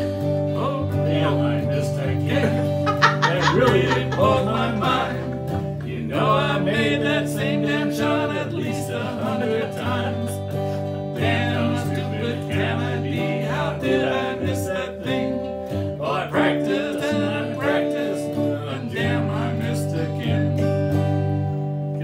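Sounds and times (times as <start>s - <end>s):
piano and guitars playing: 0.0s - 22.0s
men singing: 0.4s - 21.1s.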